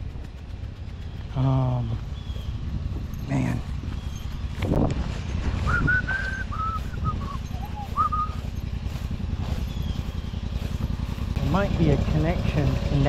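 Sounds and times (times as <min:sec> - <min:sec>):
engine idling: 0:00.0 - 0:13.0
short whistled notes: 0:05.7 - 0:08.4.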